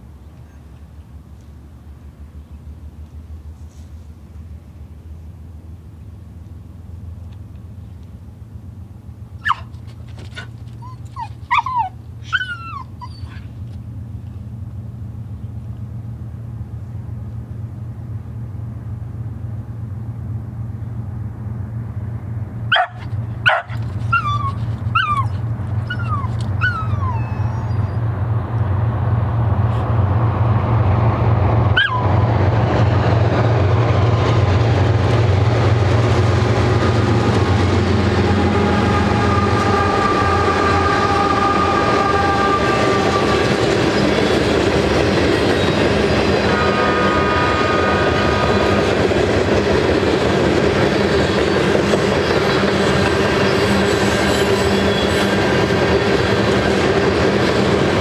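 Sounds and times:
diesel locomotives rumbling: 0:00.0 - 0:58.0
dog barking: 0:22.7 - 0:24.2.

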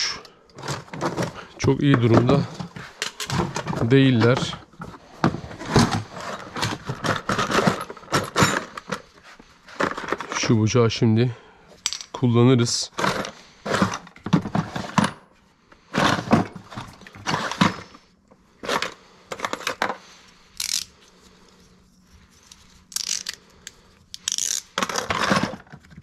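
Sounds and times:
plastic tackle box clattering: 0:00.6 - 0:09.0.

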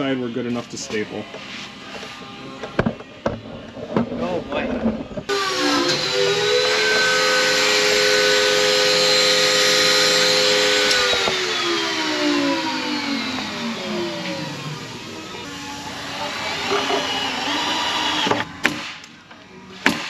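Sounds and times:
table saw running: 0:05.3 - 0:18.6.

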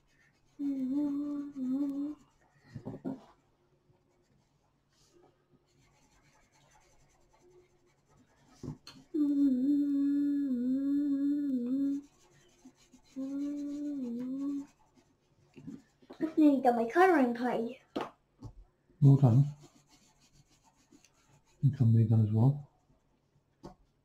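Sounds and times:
pencil scratching on paper: 0:00.0 - 0:03.4, 0:04.2 - 0:05.1, 0:05.7 - 0:09.1, 0:11.6 - 0:16.5, 0:19.0 - 0:22.0
person humming: 0:00.6 - 0:02.2, 0:09.1 - 0:12.1, 0:13.1 - 0:14.7.

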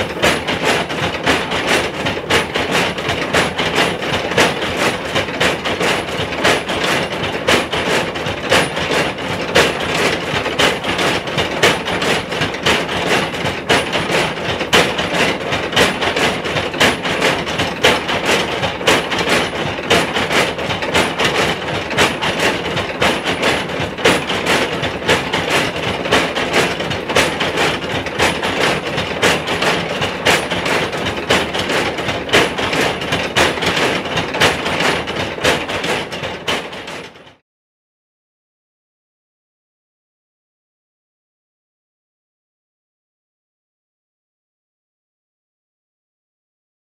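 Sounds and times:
stamp mill pounding: 0:00.0 - 0:37.4.

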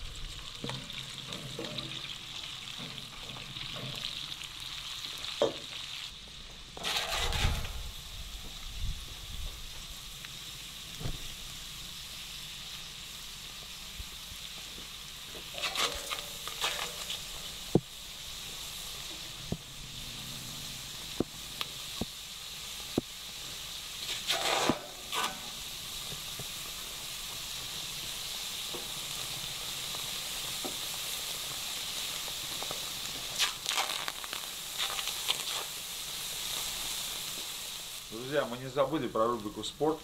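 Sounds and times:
vegetables sizzling in butter: 0:00.0 - 0:40.0
sharp pops: 0:24.0 - 0:25.5.

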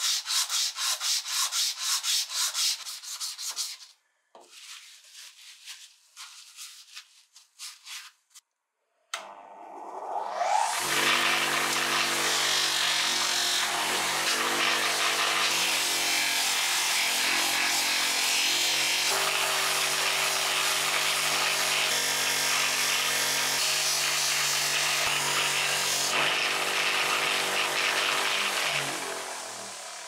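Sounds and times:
bench polisher motor hum: 0:09.4 - 0:30.0.

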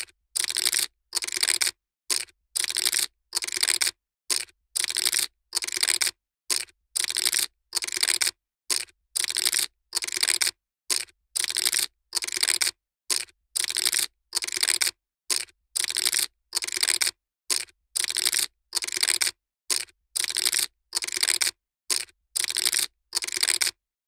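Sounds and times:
poker chips clattering: 0:20.2 - 0:23.7.

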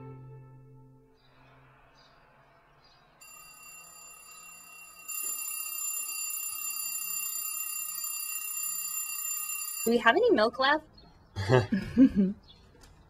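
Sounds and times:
alarm clock ringing: 0:03.2 - 0:10.4.

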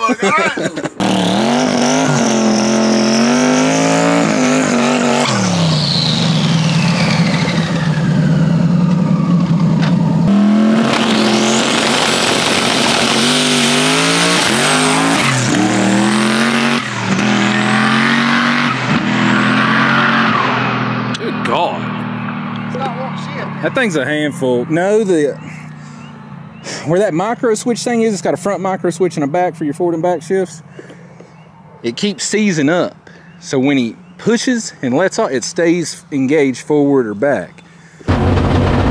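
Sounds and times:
race car engine revving: 0:00.7 - 0:24.7, 0:38.1 - 0:38.9
loud rushing noise: 0:38.1 - 0:38.9.

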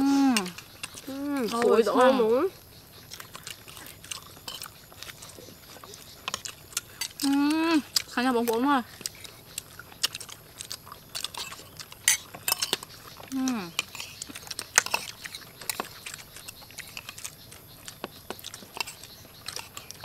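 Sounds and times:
metal cutlery clinking on plates: 0:11.2 - 0:12.9.

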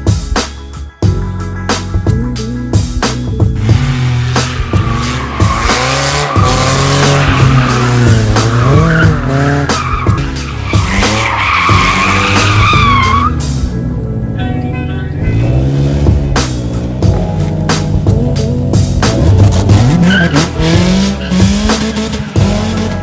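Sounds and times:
music: 0:00.0 - 0:23.0
car engine revving: 0:03.6 - 0:14.3, 0:15.2 - 0:23.0
tyres squealing on asphalt: 0:03.7 - 0:13.5, 0:19.8 - 0:22.9.

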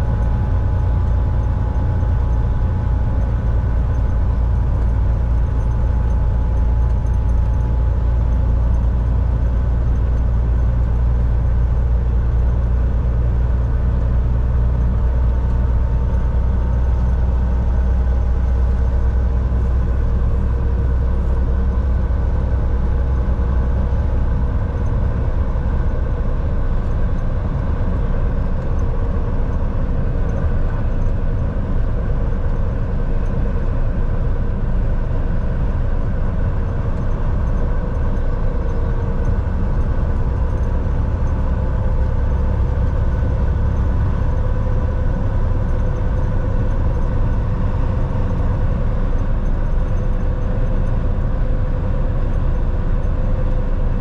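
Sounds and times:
road rumble: 0:00.0 - 0:54.0
truck engine drone: 0:00.0 - 0:54.0.

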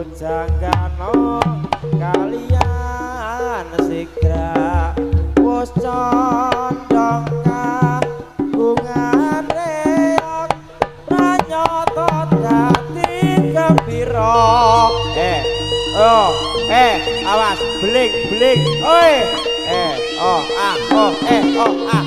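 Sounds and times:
wavering high melody: 0:11.0 - 0:22.0
low pulsing tone: 0:13.5 - 0:22.0
ringing gong tones: 0:13.8 - 0:22.0.

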